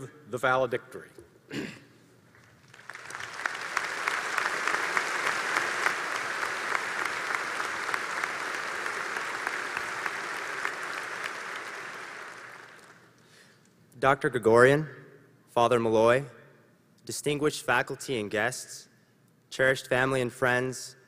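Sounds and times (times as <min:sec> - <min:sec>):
large audience applauding: 0:02.4 - 0:13.2.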